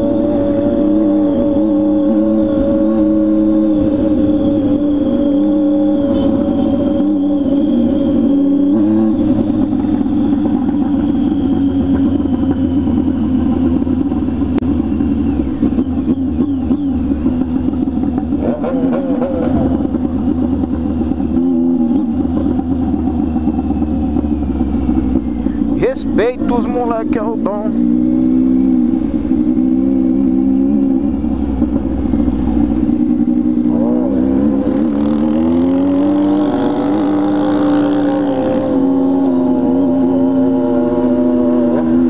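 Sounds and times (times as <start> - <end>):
motorcycle engine revving: 0.0 - 42.0.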